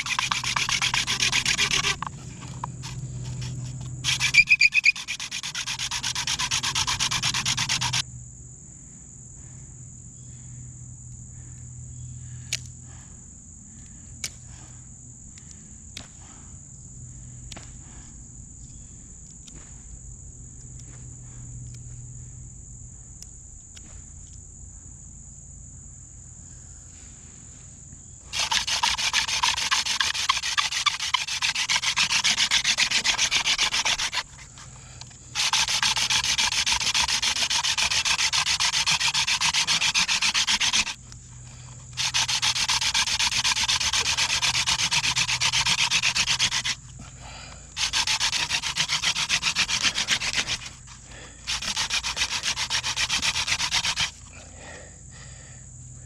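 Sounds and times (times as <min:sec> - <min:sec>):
wooden spindle rasping in socket: 0:00.0 - 0:08.0, 0:28.3 - 0:41.0, 0:41.9 - 0:46.8, 0:47.8 - 0:54.2.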